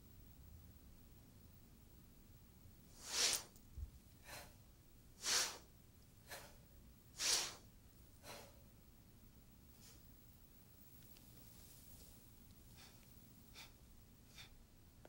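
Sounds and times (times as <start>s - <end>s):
people breathing forcefully: 4.2s - 4.6s, 5.2s - 7.6s, 8.2s - 8.7s, 12.7s - 14.6s.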